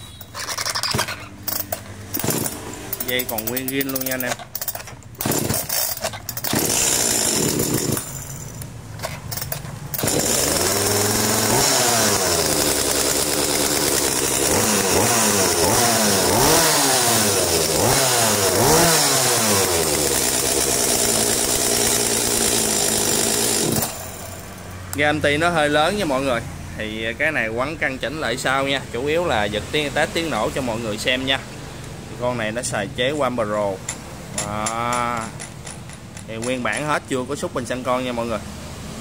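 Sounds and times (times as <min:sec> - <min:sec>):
chainsaw revving: 0:00.9 - 0:08.7, 0:09.3 - 0:24.6.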